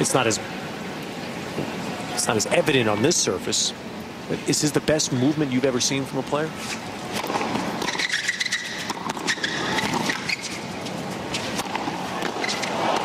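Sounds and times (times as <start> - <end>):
shoes squeaking on hard court: 6.6 - 13.0
tennis ball bouncing: 7.1 - 13.0
racket striking ball: 7.2 - 10.5, 11.4 - 13.0.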